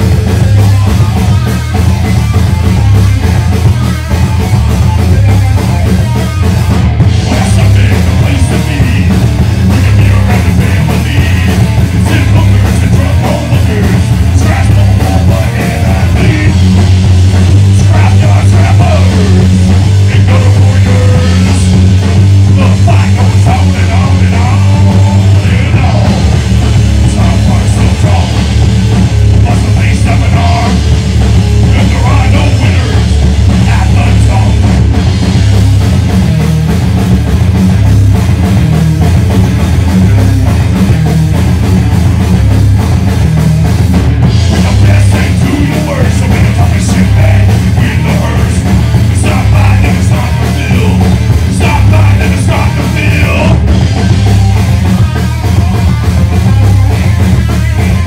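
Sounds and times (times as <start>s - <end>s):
distorted electric guitar: 0.0s - 58.0s
drum kit: 0.0s - 58.0s
rock band playing: 0.0s - 58.0s
person singing: 7.1s - 16.9s, 17.7s - 26.4s, 27.0s - 28.5s, 29.4s - 31.0s, 31.6s - 34.8s, 44.3s - 54.6s.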